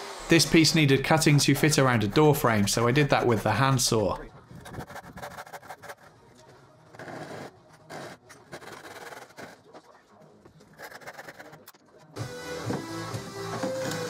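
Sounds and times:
handsaw cutting wood: 6.9s - 9.6s.

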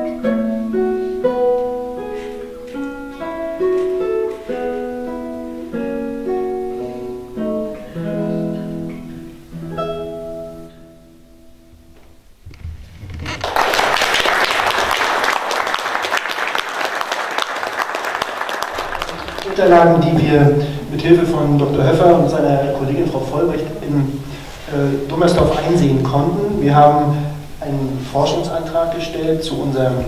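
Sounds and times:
classical guitar playing: 0.0s - 14.1s, 18.8s - 30.0s
audience applause: 12.5s - 20.1s.

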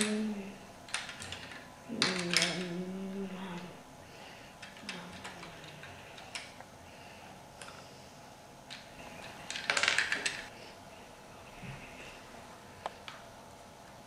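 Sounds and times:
plastic bricks clicking: 0.9s - 2.8s, 8.7s - 10.5s.

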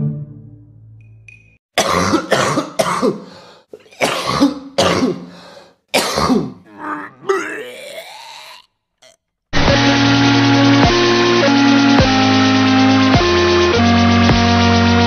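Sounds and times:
person gagging and retching: 1.8s - 3.1s, 3.7s - 5.2s, 6.0s - 9.3s.

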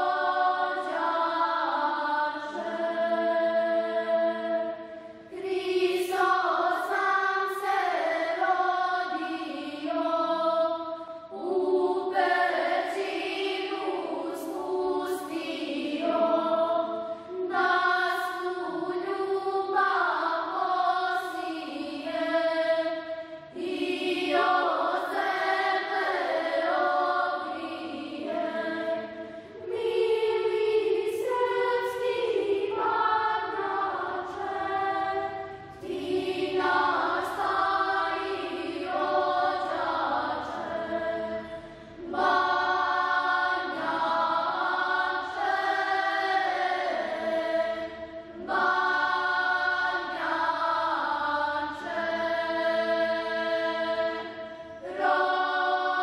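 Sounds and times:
choir chanting: 0.0s - 56.0s
singers breathing: 10.8s - 11.4s, 16.9s - 17.4s, 23.0s - 23.6s, 29.0s - 29.6s, 35.3s - 35.8s, 41.4s - 42.0s, 54.4s - 54.8s.

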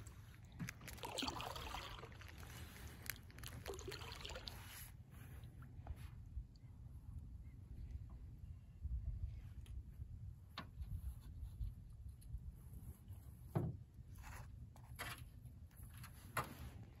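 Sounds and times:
faint low rumble: 4.5s - 13.4s
knocks and rubs in a canoe: 9.6s - 17.0s.

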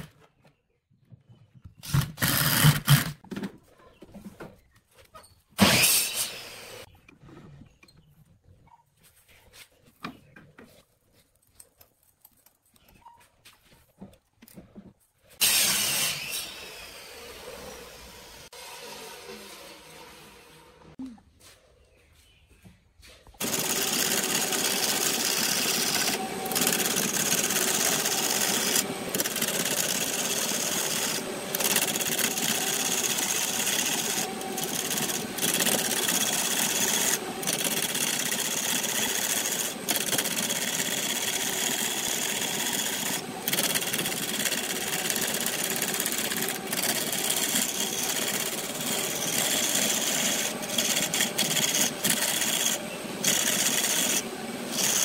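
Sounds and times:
lathe tool scraping wood: 23.4s - 55.0s.

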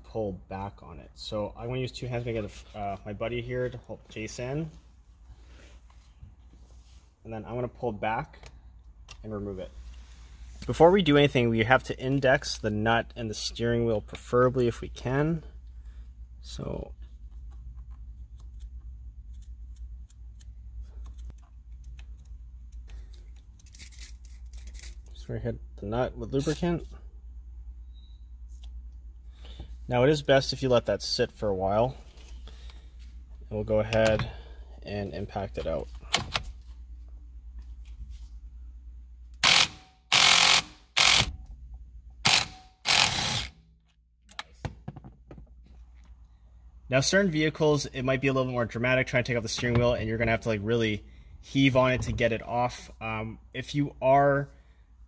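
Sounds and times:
impact wrench hammering: 39.4s - 41.4s, 42.2s - 43.6s.

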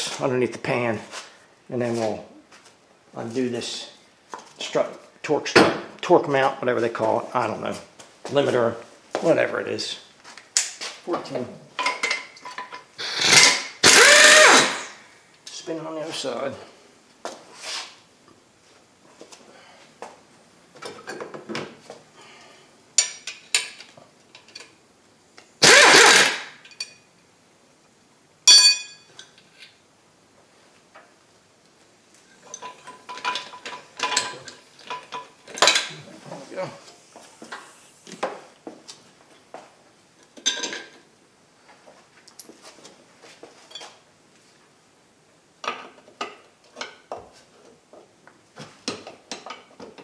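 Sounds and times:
ringing clink of metal on metal: 28.5s - 29.2s.

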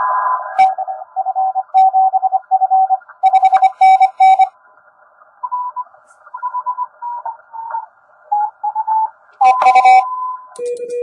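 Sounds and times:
loud low morse tone: 0.0s - 2.4s
morse code tones: 0.6s - 4.5s, 6.4s - 11.0s.

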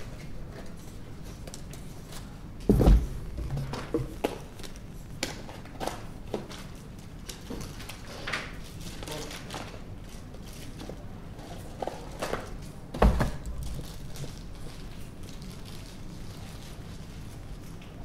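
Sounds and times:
heavy thump: 2.7s - 4.2s.

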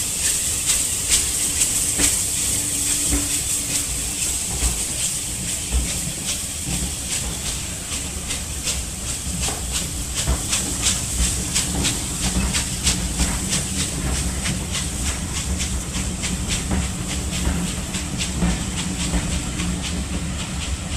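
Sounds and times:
low train rumble: 0.0s - 20.9s
steam locomotive hissing: 0.0s - 20.9s
train coaches clicking over rails: 0.0s - 20.9s.

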